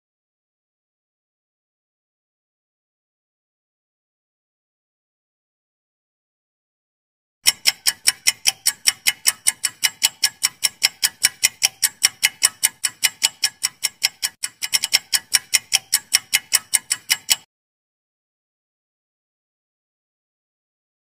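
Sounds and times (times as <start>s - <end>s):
clock-like timer ticks: 7.4s - 17.5s.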